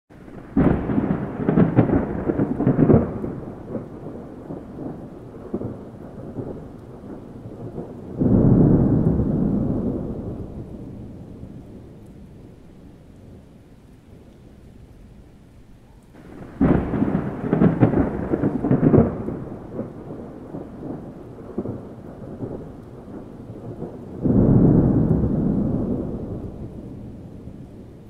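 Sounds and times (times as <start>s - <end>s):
thunder rumbling: 0.1s - 28.0s.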